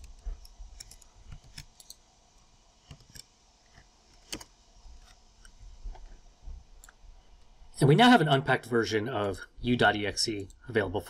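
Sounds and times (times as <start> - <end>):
computer keyboard keystrokes: 4.2 - 4.5.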